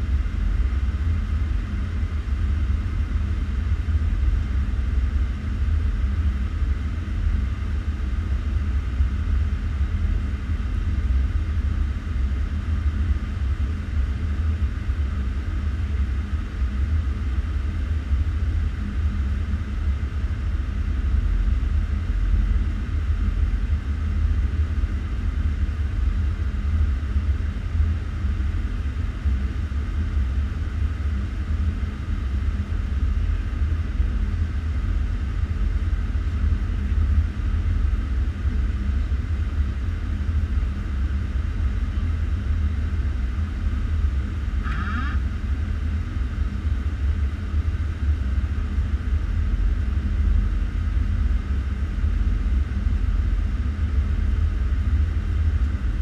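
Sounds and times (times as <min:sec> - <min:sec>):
airplane cockpit engine rumble: 0:00.0 - 0:56.0.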